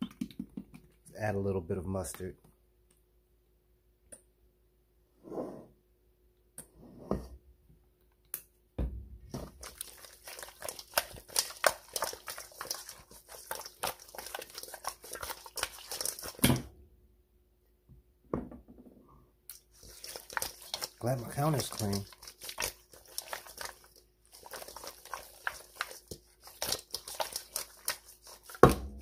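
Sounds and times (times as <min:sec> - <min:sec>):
wet squelching of raw meat: 0:09.4 - 0:16.5, 0:19.5 - 0:29.0.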